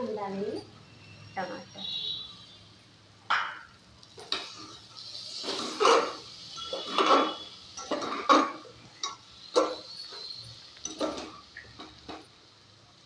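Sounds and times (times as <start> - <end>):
spatula scraping a pot: 5.3 - 8.6.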